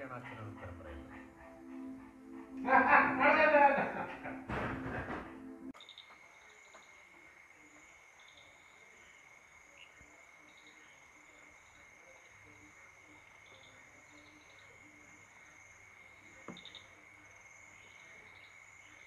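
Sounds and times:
crickets chirping: 0:05.8 - 0:19.0.

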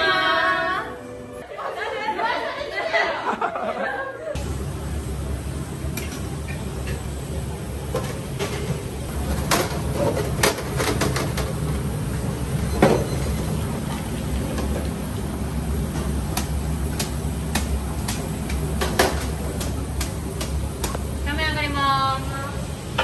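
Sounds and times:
kitchen equipment hum: 0:02.7 - 0:23.0
utensils and dishes clinking: 0:07.9 - 0:14.9.

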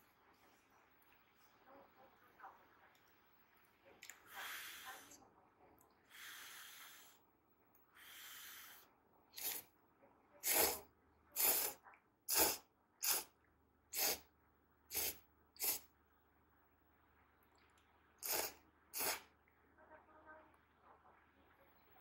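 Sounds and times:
person slurping noodles: 0:09.4 - 0:09.6, 0:10.4 - 0:10.8, 0:11.4 - 0:13.3, 0:14.0 - 0:14.2, 0:14.9 - 0:15.8, 0:18.2 - 0:19.3.

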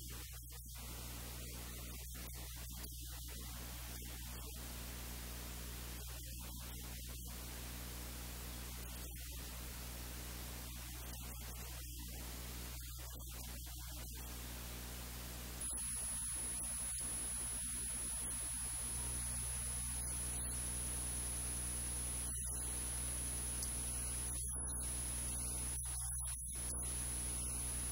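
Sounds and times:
faint high-pitched whine: 0:00.0 - 0:27.9
low electrical hum: 0:14.8 - 0:27.9
steady hiss: 0:15.6 - 0:27.9.

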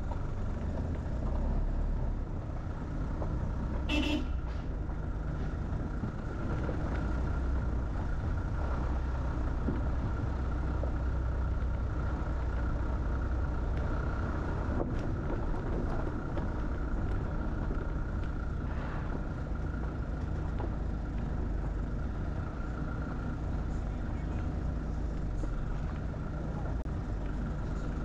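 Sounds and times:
vehicle engine and road rumble: 0:00.0 - 0:28.0.

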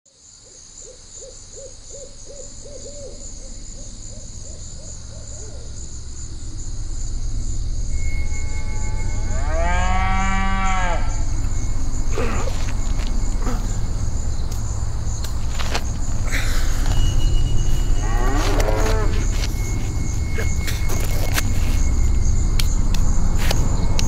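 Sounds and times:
insects chirping: 0:00.1 - 0:24.0
low rumble: 0:04.0 - 0:24.0
long low moaning call: 0:07.3 - 0:15.1, 0:16.2 - 0:24.0
short hooting calls: 0:16.2 - 0:22.1.

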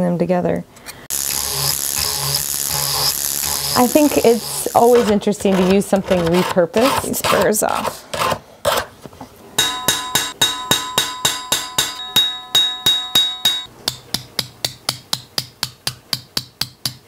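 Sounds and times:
metallic ringing: 0:09.6 - 0:14.0
hammer striking metal: 0:09.6 - 0:17.0.

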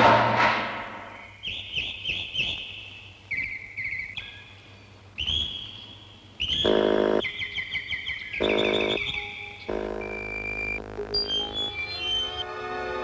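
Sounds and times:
electronic bird-like chirps: 0:01.1 - 0:04.6, 0:05.2 - 0:12.5
buzzy synthesizer tones: 0:06.5 - 0:07.3, 0:08.3 - 0:13.0.

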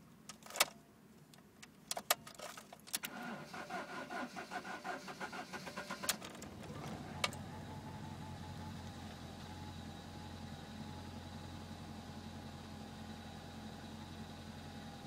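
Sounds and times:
car engine idling: 0:03.2 - 0:15.0
key and ignition clicks: 0:05.7 - 0:07.5.

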